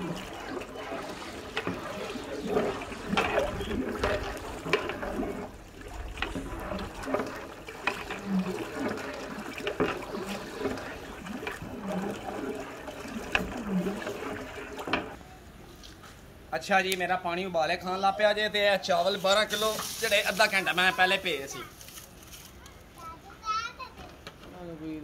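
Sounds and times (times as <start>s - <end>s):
liquid sloshing in pot: 0.0s - 15.2s.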